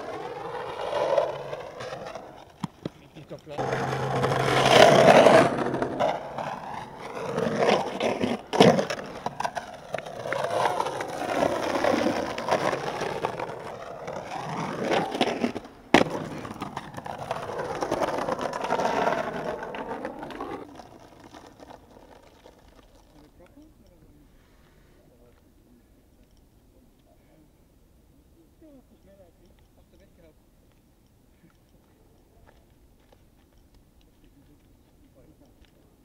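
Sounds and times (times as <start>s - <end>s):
skateboard wheels on rough concrete: 0.0s - 25.0s
skateboard knocks: 0.7s - 22.5s.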